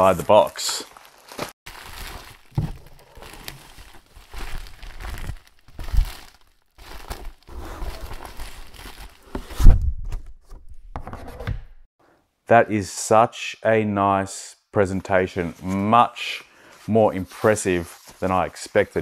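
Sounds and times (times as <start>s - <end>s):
plastic wrapping crinkling and tearing: 0.2s - 9.3s
cardboard box thumps: 2.5s - 3.0s.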